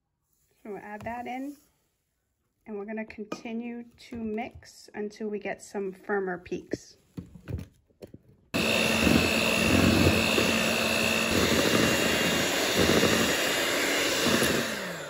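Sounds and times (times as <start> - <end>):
electric hand mixer whining: 8.6 - 15.0.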